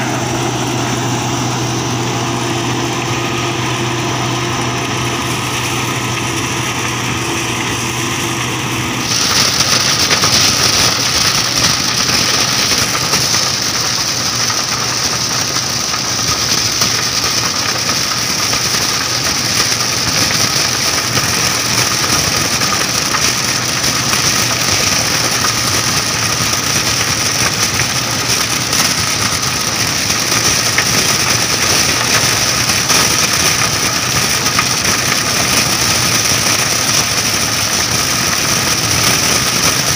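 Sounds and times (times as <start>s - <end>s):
combine harvester running: 0.0s - 39.9s
strong hiss: 9.0s - 39.9s.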